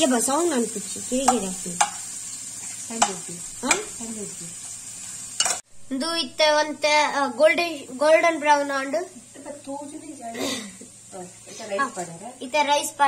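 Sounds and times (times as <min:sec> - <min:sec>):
onions sizzling in hot fat: 0:00.0 - 0:13.0
spatula scraping and tapping pan: 0:01.1 - 0:04.1, 0:05.0 - 0:05.6.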